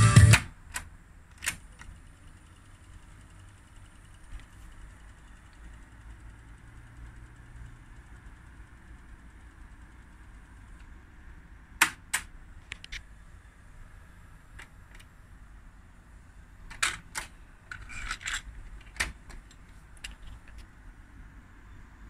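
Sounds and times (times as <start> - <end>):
plastic clatter of cassette door: 16.7 - 20.7.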